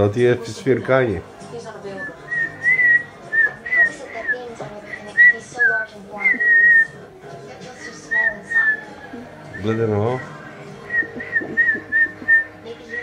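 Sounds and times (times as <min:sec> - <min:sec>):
boy whistling: 0:05.0 - 0:07.0, 0:08.1 - 0:13.0.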